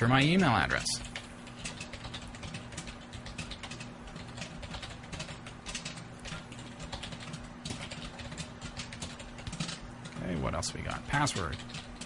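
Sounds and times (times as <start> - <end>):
faint steady hum: 0.0 - 12.0
keyboard typing: 0.0 - 12.0.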